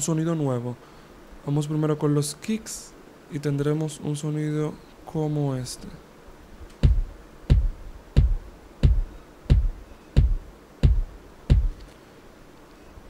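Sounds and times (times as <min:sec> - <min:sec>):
electronic kick drum hits: 0:06.8 - 0:11.8.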